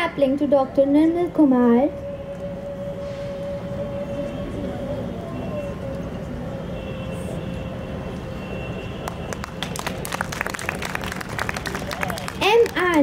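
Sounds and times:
hall background rumble: 0.0s - 13.0s
people clapping: 9.0s - 13.0s.

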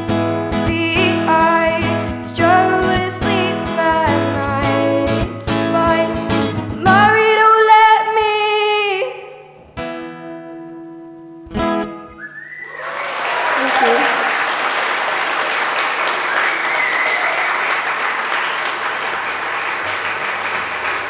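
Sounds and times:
acoustic guitar strumming: 0.0s - 7.5s, 9.6s - 12.6s
girl singing: 0.5s - 9.4s.

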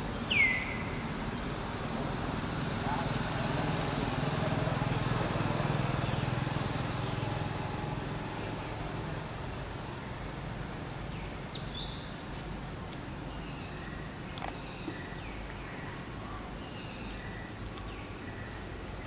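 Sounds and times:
passing vehicle engine hum: 0.0s - 11.2s
steady background hiss: 0.0s - 19.0s.

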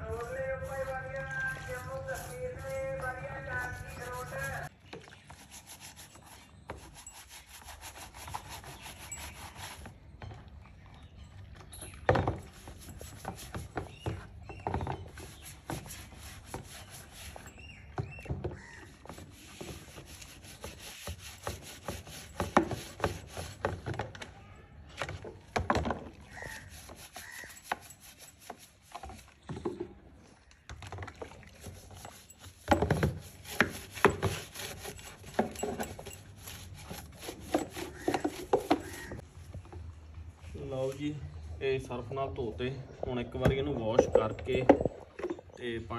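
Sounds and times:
brush scrubbing plastic in water: 0.0s - 10.0s, 12.3s - 17.9s, 18.6s - 24.2s, 25.0s - 29.6s, 31.1s - 39.2s.

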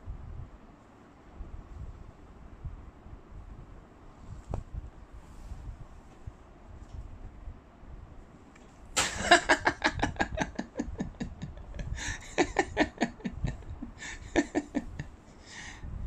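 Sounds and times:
person laughing hard: 9.0s - 15.2s
breathy gasps: 15.4s - 15.9s.

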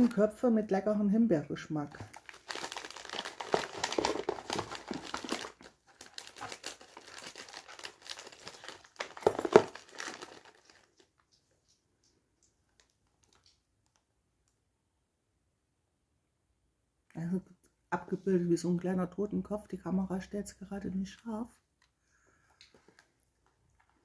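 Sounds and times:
plastic bag crinkling: 2.0s - 11.2s, 12.8s - 14.0s.

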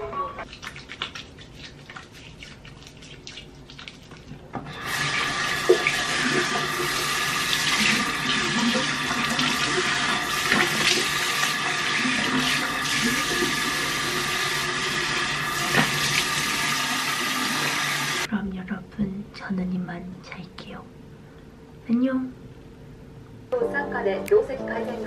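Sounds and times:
soapy hands rubbing: 0.4s - 18.2s
tap running into basin: 4.6s - 18.3s.

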